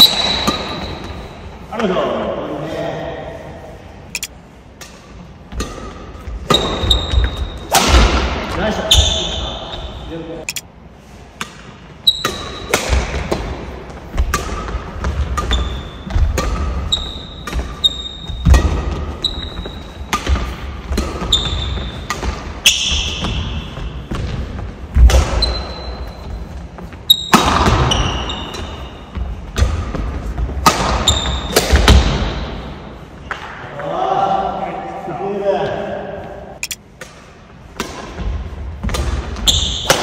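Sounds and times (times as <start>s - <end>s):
racket hitting shuttlecock: 0.0s - 1.1s, 4.2s - 9.2s, 11.3s - 25.9s, 27.1s - 33.6s, 36.6s - 40.0s
shoes squeaking on court: 0.0s - 1.6s, 4.1s - 4.4s, 5.5s - 7.8s, 8.7s - 10.7s, 14.0s - 31.6s, 39.3s - 40.0s.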